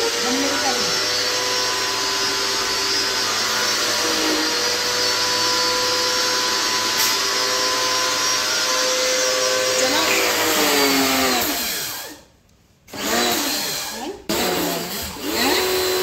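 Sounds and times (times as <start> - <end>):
pressure washer motor whine: 0.0 - 12.2.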